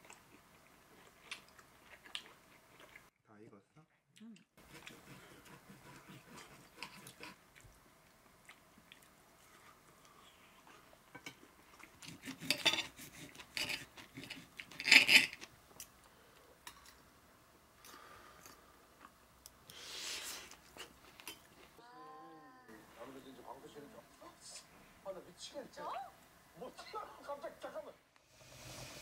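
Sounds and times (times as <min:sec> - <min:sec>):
knife and fork scraping a plate: 0:12.0 - 0:15.5.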